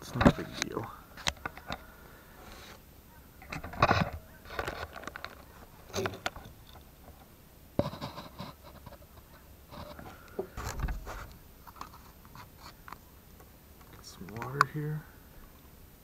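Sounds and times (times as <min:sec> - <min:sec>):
heavy low thump: 0:10.6 - 0:11.3.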